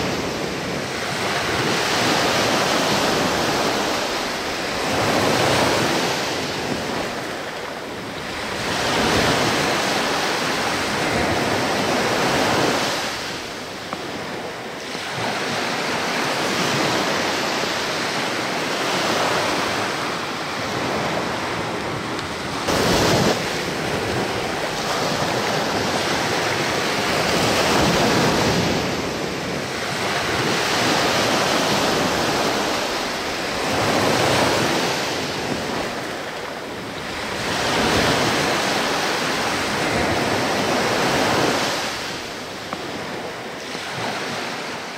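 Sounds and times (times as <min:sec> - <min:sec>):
small waves washing on shore: 0:00.0 - 0:44.9
wind on microphone: 0:00.0 - 0:44.9.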